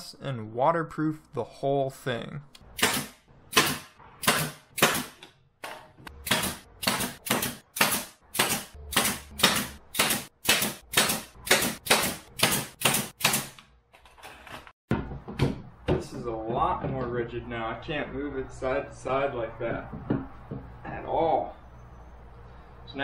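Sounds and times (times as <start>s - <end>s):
nail gun firing: 2.8s - 5.2s, 6.2s - 13.6s.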